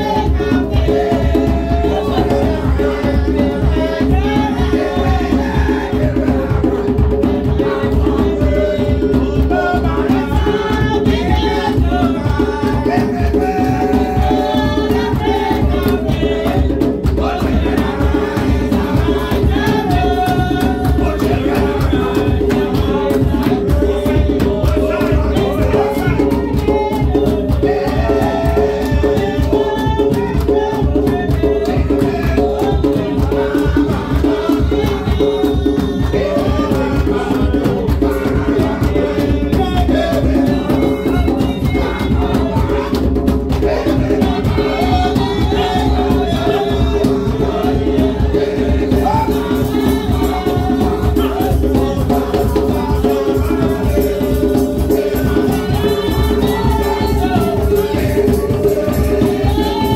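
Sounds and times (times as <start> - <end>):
shakers and hand percussion: 0.0 - 59.9
voices singing a melody: 0.0 - 59.9.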